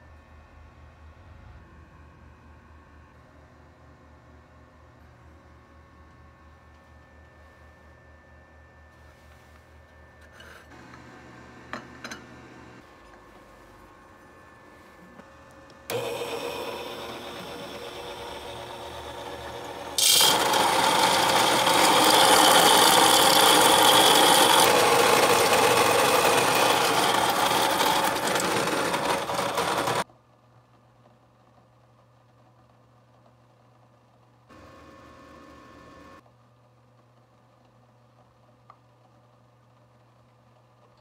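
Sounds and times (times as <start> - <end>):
electric coffee grinder grinding: 15.9 - 30.0.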